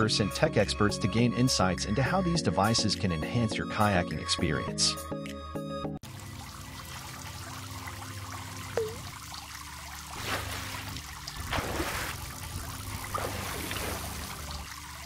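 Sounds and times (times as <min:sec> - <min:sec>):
water trickling and splashing: 0:06.0 - 0:15.0.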